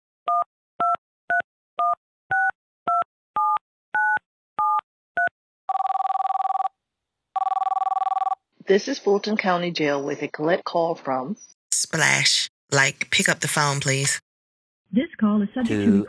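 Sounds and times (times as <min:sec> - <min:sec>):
touch-tone keypad beeps: 0:00.3 - 0:06.7
electronic phone ringing: 0:03.4 - 0:06.8, 0:07.4 - 0:08.4.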